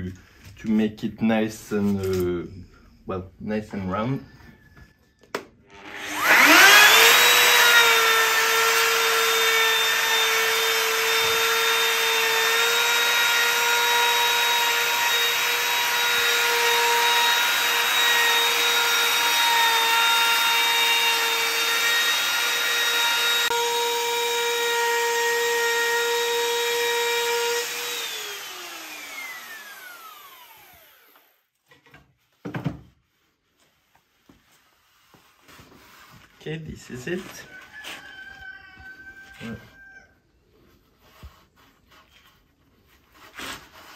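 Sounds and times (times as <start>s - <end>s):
electric router whining: 5.7s - 31.4s.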